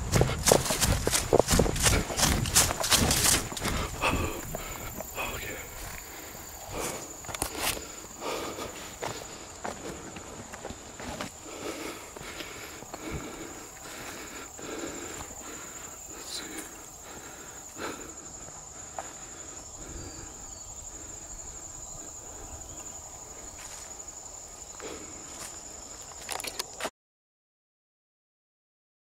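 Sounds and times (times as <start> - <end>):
footsteps crunching through dry leaves: 0.0 - 14.0
high-pitched insect trill: 0.0 - 26.9.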